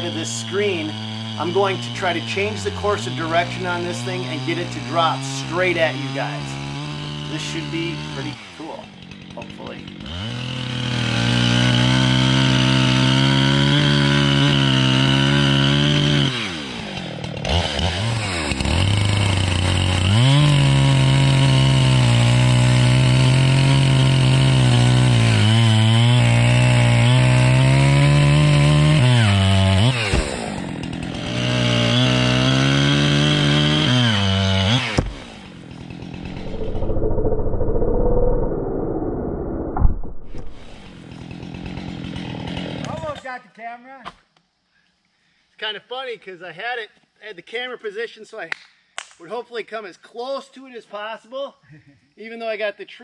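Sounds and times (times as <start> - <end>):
chainsaw cutting tree: 0.0 - 37.1, 40.1 - 43.2.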